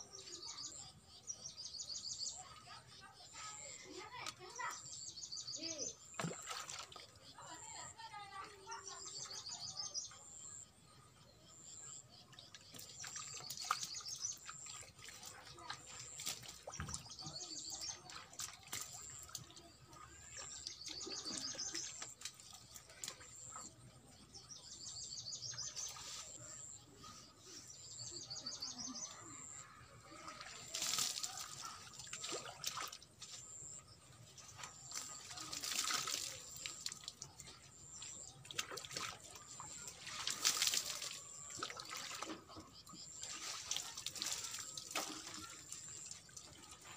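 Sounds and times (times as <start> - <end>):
birds chirping: 0.0 - 15.0, 16.0 - 29.8
water pouring and splashing: 3.4 - 10.0, 12.4 - 23.7, 30.1 - 46.9.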